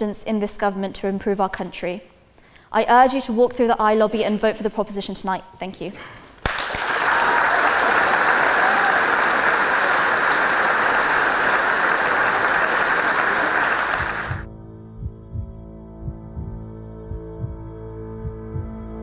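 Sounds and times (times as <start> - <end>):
large audience applauding: 6.4 - 14.5
quiet ambient music: 14.0 - 19.0.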